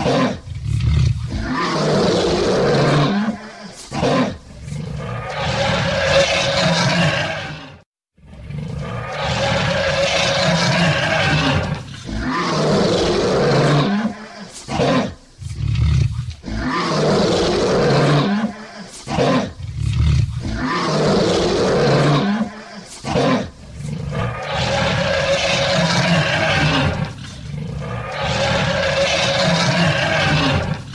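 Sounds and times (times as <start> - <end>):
lion roaring: 0.0 - 30.9
lion grunting: 8.3 - 30.9.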